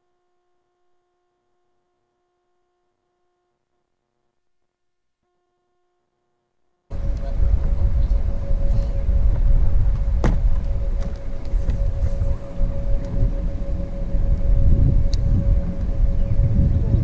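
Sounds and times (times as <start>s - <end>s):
steady mid-pitched whine: 6.8s - 17.0s
wind buffeting microphone: 6.9s - 17.0s.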